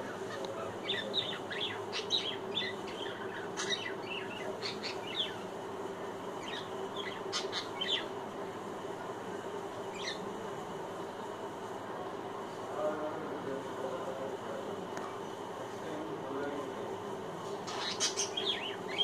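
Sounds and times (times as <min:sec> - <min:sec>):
budgerigar chirping: 0:00.8 - 0:05.4, 0:06.4 - 0:08.1, 0:09.9 - 0:10.2, 0:17.7 - 0:19.0.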